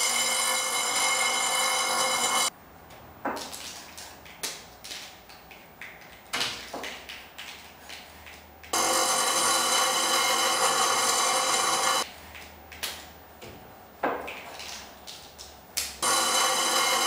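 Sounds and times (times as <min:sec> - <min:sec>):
bench grinder whine: 0:00.0 - 0:02.5, 0:08.8 - 0:12.0, 0:16.0 - 0:17.0.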